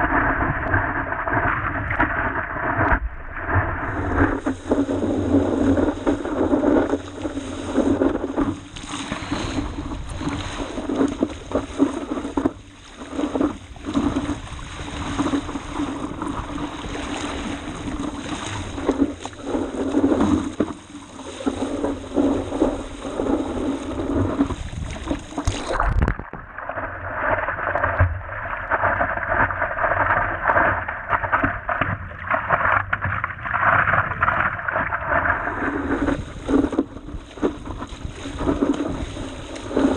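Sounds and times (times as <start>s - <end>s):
water rushing and splashing: 0.0s - 39.9s
wind buffeting microphone: 2.7s - 26.3s, 35.0s - 39.9s.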